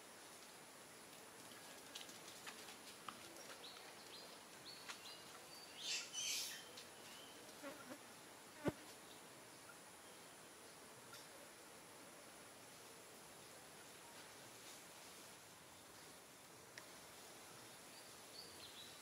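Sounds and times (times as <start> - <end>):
rustling hiss: 0.0 - 19.0
faint insect buzzing: 5.8 - 19.0.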